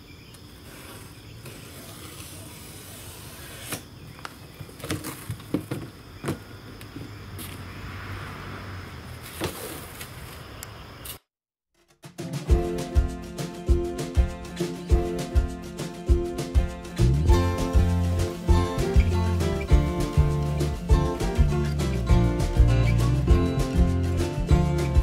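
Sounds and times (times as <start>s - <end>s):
crickets chirring: 0.0s - 11.2s
music: 11.8s - 25.0s.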